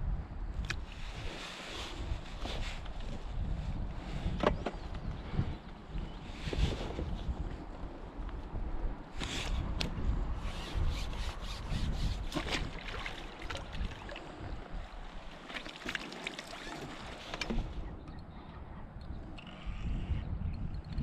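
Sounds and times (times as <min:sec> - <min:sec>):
wind on microphone: 0:00.0 - 0:21.0
net splashing in water: 0:15.4 - 0:17.2.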